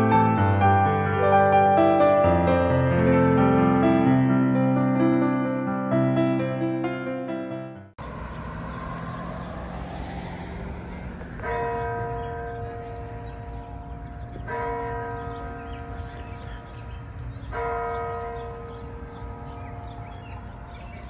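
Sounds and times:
outdoor background noise: 8.0 - 21.0
church bell tolling: 11.4 - 21.0.

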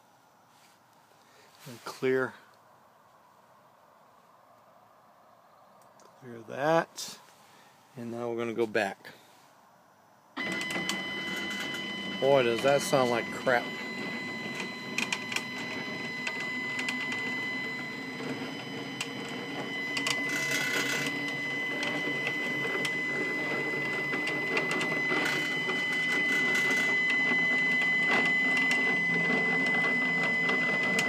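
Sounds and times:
stepper motor whine: 10.4 - 31.0.

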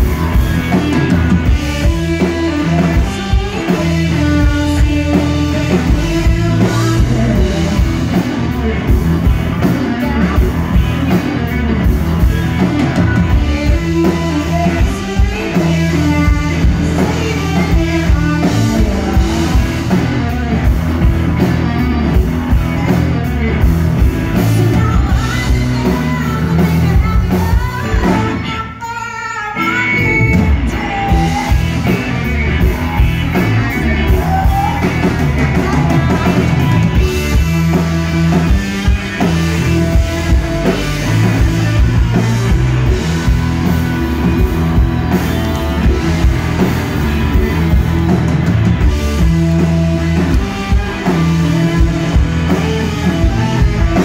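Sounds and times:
bass guitar: 0.0 - 54.0
drum kit: 0.0 - 54.0
electric guitar: 0.0 - 54.0
woman singing: 1.4 - 11.3, 12.7 - 20.6, 24.4 - 32.4, 33.0 - 37.8.

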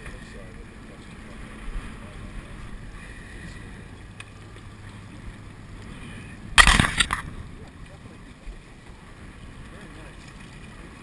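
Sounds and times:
faint wind: 0.0 - 11.0
water noise: 0.0 - 11.0.

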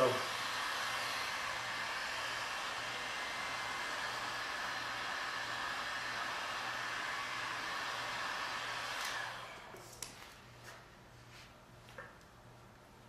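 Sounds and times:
heat gun blowing: 0.0 - 10.4.

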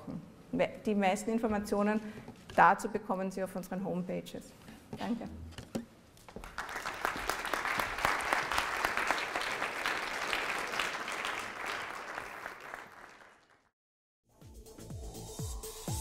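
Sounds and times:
audience applauding: 6.4 - 13.7.

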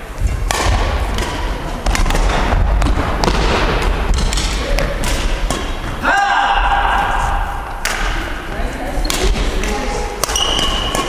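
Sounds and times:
racket hitting shuttlecock: 0.2 - 6.0, 7.7 - 8.3, 9.0 - 11.0.

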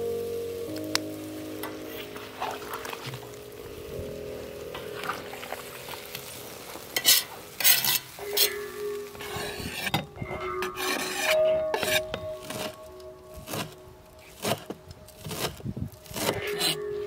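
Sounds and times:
food sizzling in hot oil: 0.0 - 10.1
metal spoon scraping a pot: 7.0 - 12.8, 13.4 - 17.0.

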